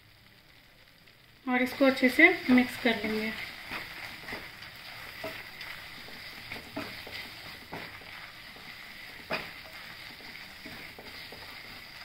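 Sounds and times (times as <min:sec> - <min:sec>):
faint sizzle: 0:00.0 - 0:12.0
spatula scraping a pan: 0:01.7 - 0:12.0
spatula tapping: 0:02.4 - 0:12.0.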